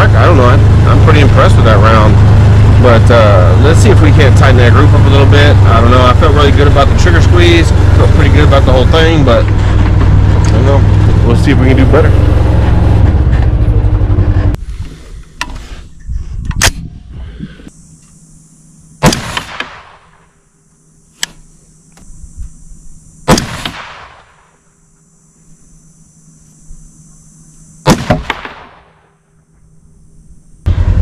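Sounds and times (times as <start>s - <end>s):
loud rumbling noise: 0.0s - 14.6s, 30.6s - 31.0s
rifle shots with echo: 19.0s - 20.2s, 23.3s - 24.4s, 27.8s - 29.1s.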